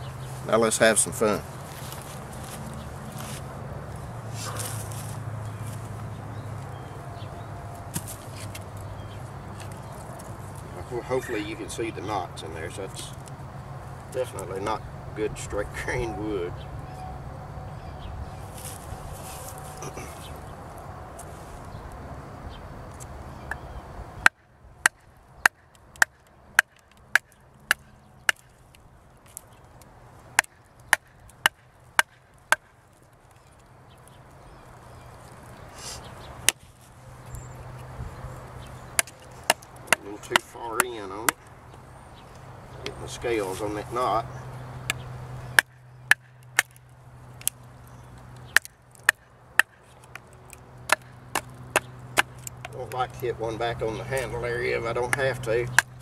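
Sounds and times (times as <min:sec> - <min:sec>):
wood splitting: 0:24.2 - 0:28.7, 0:38.9 - 0:41.4, 0:45.6 - 0:47.6, 0:48.4 - 0:53.1.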